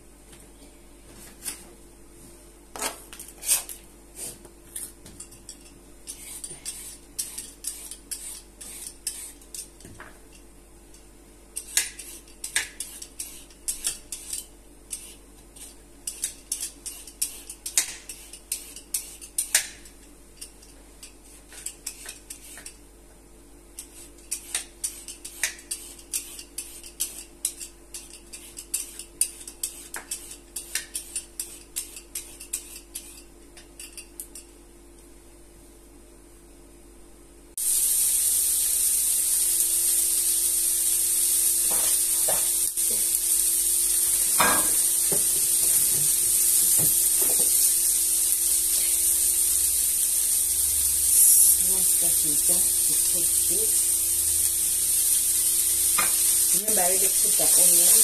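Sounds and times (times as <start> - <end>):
peeler scraping carrot: 6.1 - 9.7, 23.8 - 33.3.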